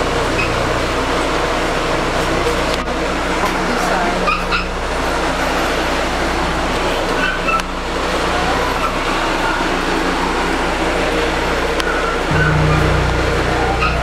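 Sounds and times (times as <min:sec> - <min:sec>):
low even hum: 0:12.3 - 0:14.0
machine rushing drone: 0:12.3 - 0:14.0.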